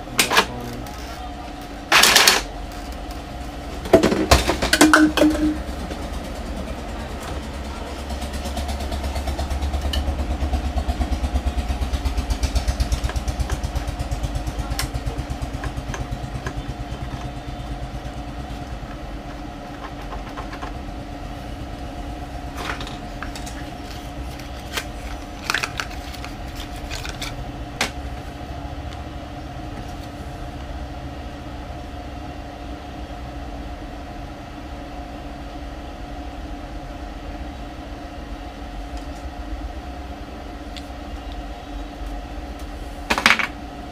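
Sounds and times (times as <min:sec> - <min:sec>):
motor hum: 0:00.0 - 0:43.9.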